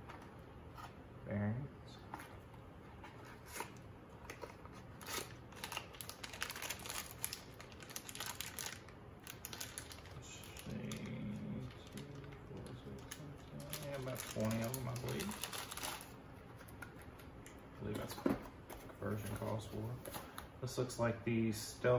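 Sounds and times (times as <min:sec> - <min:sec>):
plastic bag crinkling: 0:04.3 - 0:16.2.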